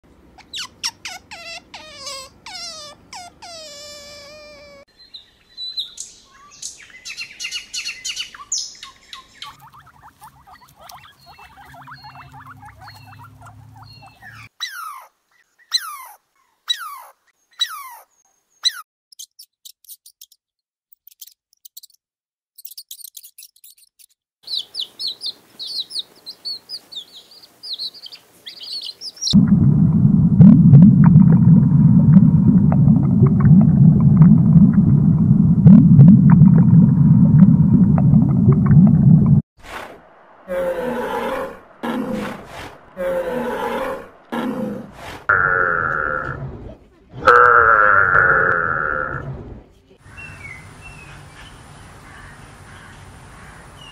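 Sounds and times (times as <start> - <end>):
animal and bird calls: 0.4 - 19.4, 22.6 - 29.4, 40.5 - 46.4, 50.0 - 53.9
birds twittering: 4.9 - 18.8, 24.4 - 29.4, 50.0 - 53.9
chirping chorus: 5.6 - 14.5, 40.2 - 46.1
loud low rumble: 29.4 - 39.4.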